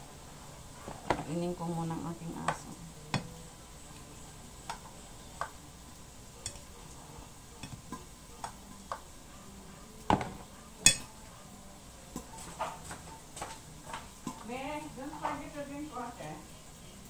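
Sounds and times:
utensils clinking against a bowl: 6.4s - 7.0s, 7.6s - 9.2s, 10.1s - 11.3s, 12.1s - 15.6s.

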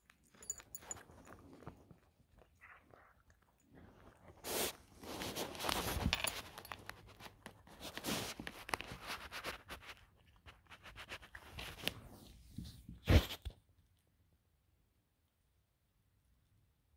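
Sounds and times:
cat eating off wooden floor: 0.0s - 12.1s.

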